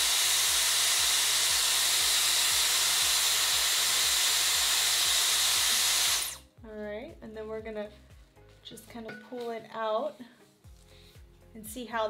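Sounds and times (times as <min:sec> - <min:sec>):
hair styler blowing air: 0:00.0 - 0:06.5.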